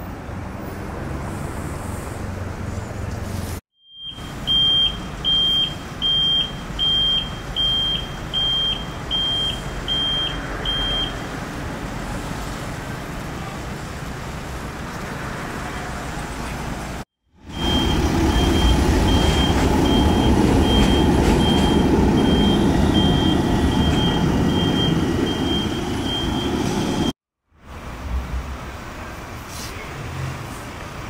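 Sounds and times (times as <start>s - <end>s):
idling engines and traffic rumble: 0.0s - 3.6s, 4.2s - 31.0s
vehicle reversing alarm beeps: 3.8s - 11.2s, 17.5s - 27.2s.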